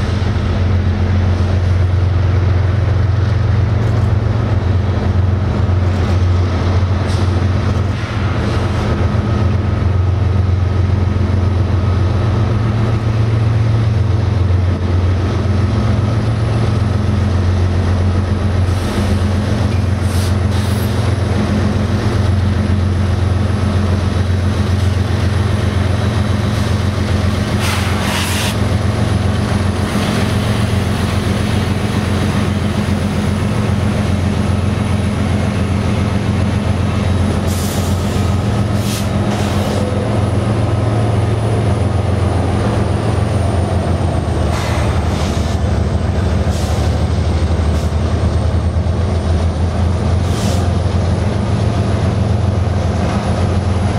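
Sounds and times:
diesel locomotive engines droning: 0:00.0 - 0:53.9
short air hiss: 0:27.6 - 0:28.6.

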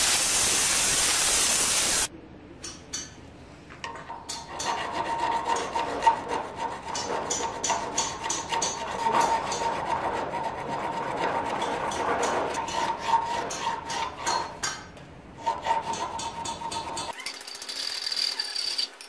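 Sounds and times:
hand file scraping metal: 0:04.4 - 0:14.8, 0:15.4 - 0:17.2.

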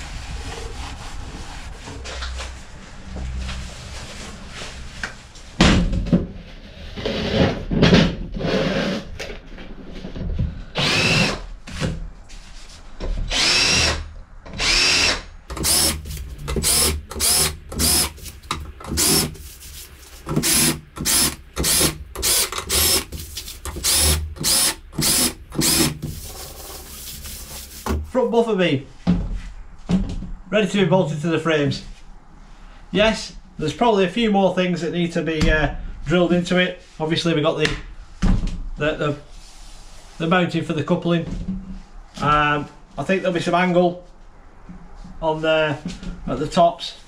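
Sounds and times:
cordless drill drilling into metal: 0:10.8 - 0:11.4, 0:13.3 - 0:14.0, 0:14.6 - 0:19.4, 0:20.3 - 0:26.3.

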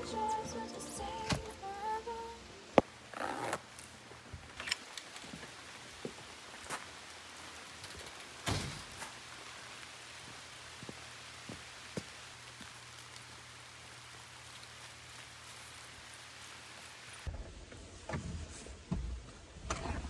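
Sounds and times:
footsteps on wooden boardwalk: 0:05.2 - 0:07.0, 0:10.2 - 0:12.8.

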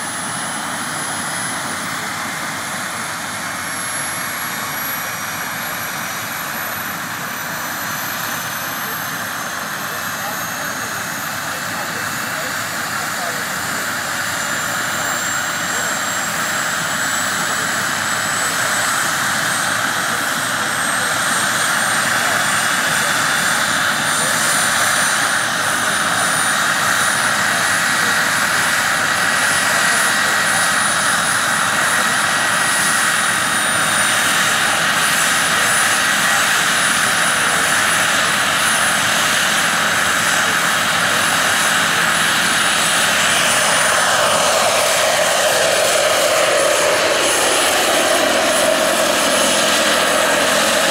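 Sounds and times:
gas turbine whine: 0:00.0 - 0:50.9.

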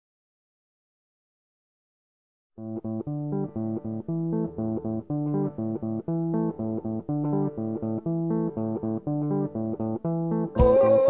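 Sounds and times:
plucked guitar: 0:02.6 - 0:11.0
bass guitar: 0:02.7 - 0:11.0.

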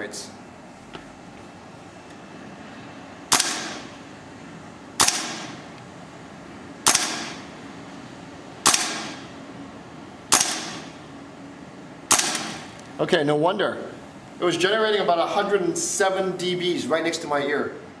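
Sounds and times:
airsoft rifle shots: 0:03.3 - 0:03.9, 0:05.0 - 0:05.6, 0:06.8 - 0:07.4, 0:08.6 - 0:09.2, 0:10.3 - 0:11.0, 0:12.1 - 0:12.7.

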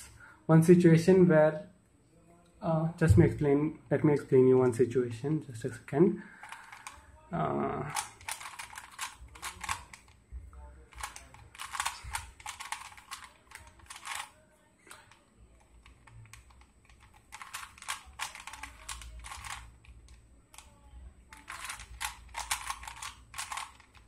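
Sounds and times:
plastic puzzle cube clicking: 0:06.4 - 0:07.0, 0:07.9 - 0:10.2, 0:10.9 - 0:20.7, 0:21.3 - 0:24.0.

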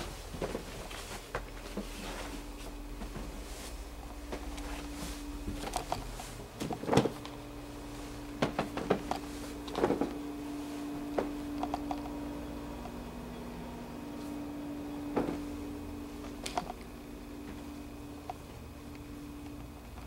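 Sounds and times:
steady low hum: 0:00.0 - 0:20.0
knocks and bumps: 0:08.4 - 0:09.1.

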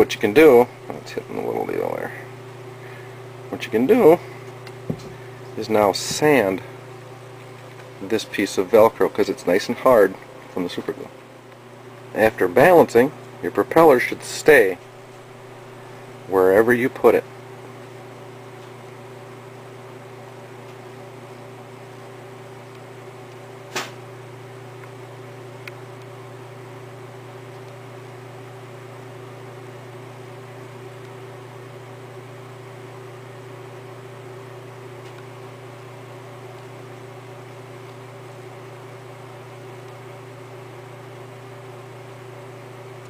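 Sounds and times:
background hum and hiss: 0:00.0 - 0:43.0
sharp click: 0:23.7 - 0:24.0.

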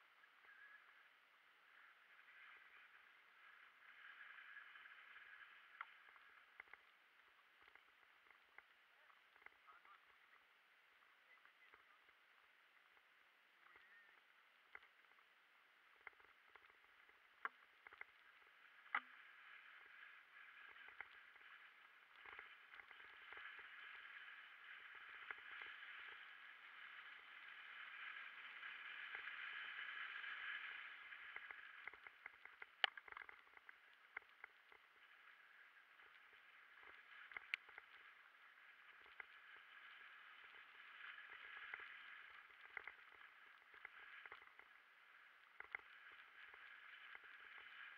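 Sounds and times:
tyres hissing on dirt trail: 0:19.2 - 0:31.8.

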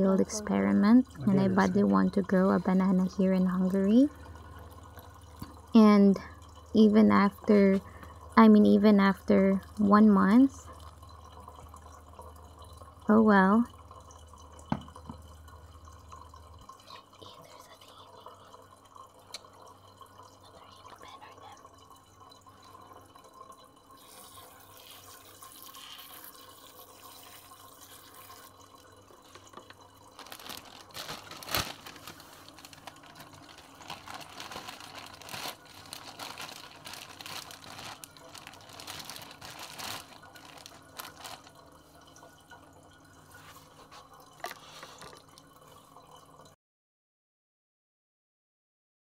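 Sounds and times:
plastic bag crinkling: 0:29.2 - 0:42.1.

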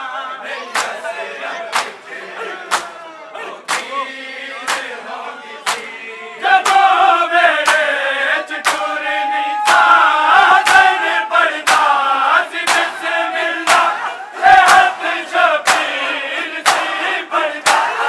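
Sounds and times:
men chanting in unison: 0:00.0 - 0:18.0
chest-beating slaps: 0:03.7 - 0:03.9, 0:04.7 - 0:04.9, 0:05.7 - 0:05.9, 0:07.6 - 0:07.9, 0:08.6 - 0:08.9, 0:11.6 - 0:12.0, 0:12.6 - 0:13.0, 0:13.6 - 0:14.0, 0:14.6 - 0:15.0, 0:15.6 - 0:16.0, 0:16.6 - 0:17.0.

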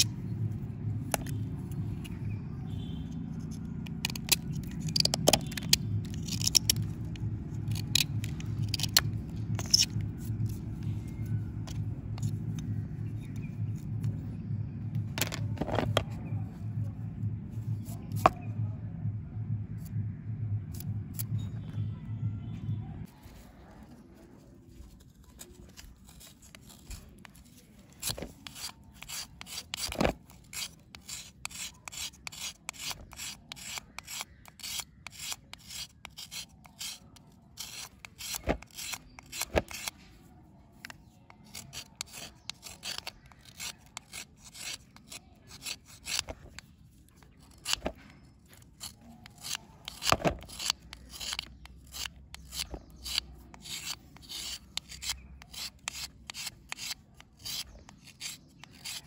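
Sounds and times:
knife blade scraping: 0:03.4 - 0:13.9, 0:25.3 - 0:40.0, 0:40.8 - 0:59.0.

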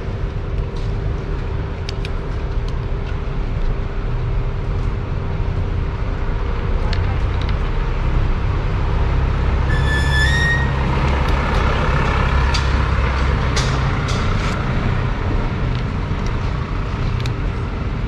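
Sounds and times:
heavy vehicle rumbling past: 0:07.8 - 0:18.0
brake squeal: 0:09.6 - 0:11.3.

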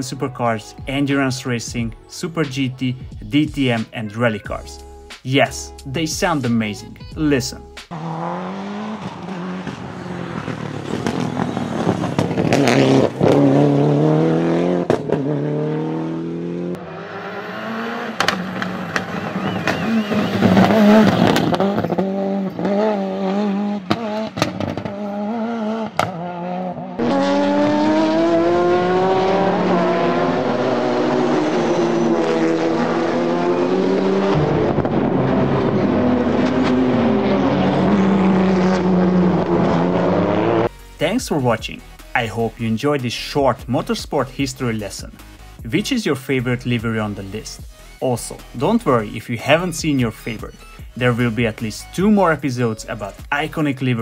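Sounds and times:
rally car engines revving: 0:07.9 - 0:40.7
race car engine at full throttle: 0:07.9 - 0:40.8.

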